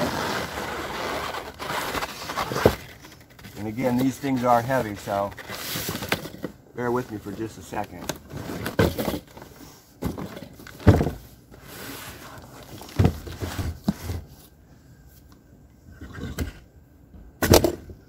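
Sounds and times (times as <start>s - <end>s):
cardboard rustling and scraping: 0.0s - 6.5s, 7.1s - 14.6s
box thudding on wooden table: 10.0s - 11.2s.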